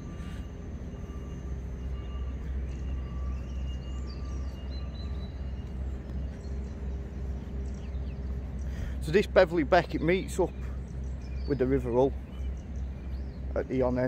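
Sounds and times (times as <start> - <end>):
faint bird calls: 0.0 - 9.2
steady low rumble: 0.0 - 14.0.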